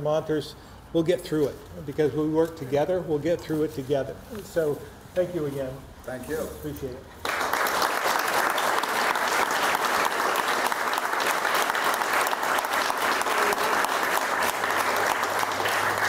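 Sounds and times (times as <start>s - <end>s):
crowd applauding: 7.2s - 16.0s.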